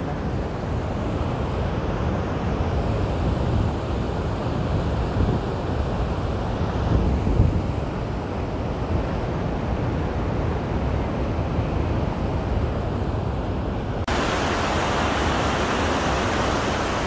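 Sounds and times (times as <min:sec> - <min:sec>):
fast river water rushing: 0:14.1 - 0:17.0
waterfall roaring: 0:14.1 - 0:17.0.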